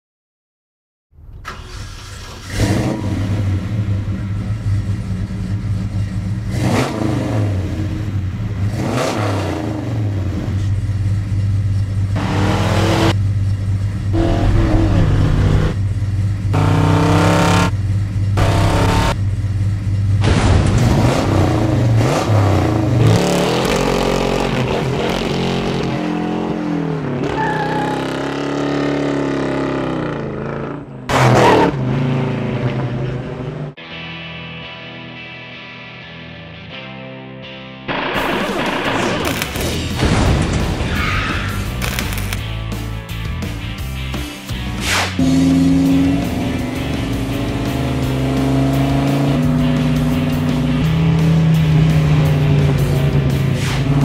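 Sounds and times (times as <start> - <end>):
truck driving: 1.2 - 33.7, 37.9 - 54.0
engine revving: 1.5 - 4.8, 6.0 - 10.8, 12.1 - 13.2, 13.9 - 19.2, 20.2 - 33.7, 41.6 - 42.4, 44.8 - 54.0.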